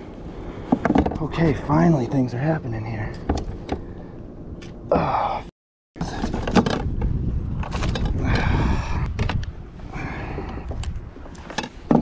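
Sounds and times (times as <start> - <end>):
wind buffeting microphone: 6.0 - 11.4
handling clicks and scraping: 10.4 - 12.0.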